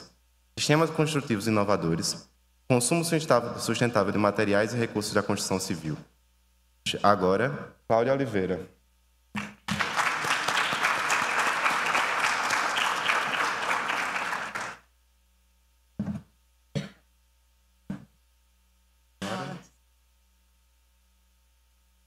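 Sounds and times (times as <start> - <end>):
audience applauding: 9.4 - 14.8.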